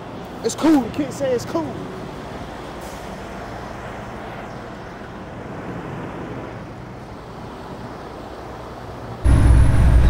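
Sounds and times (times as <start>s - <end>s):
road and wind noise: 0.0s - 10.0s
truck engine drone: 7.9s - 10.0s.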